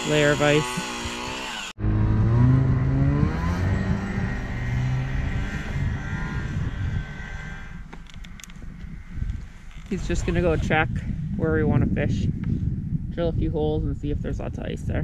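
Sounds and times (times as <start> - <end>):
snowmobile accelerating: 0.0 - 9.1.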